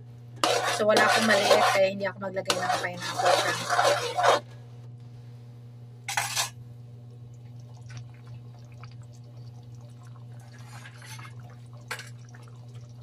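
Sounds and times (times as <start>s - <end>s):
sauce bubbling in a wok: 7.2s - 13.0s.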